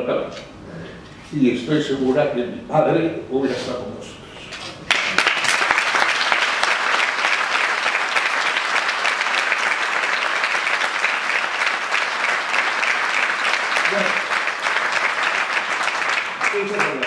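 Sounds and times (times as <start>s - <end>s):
audience clapping: 4.8s - 17.0s.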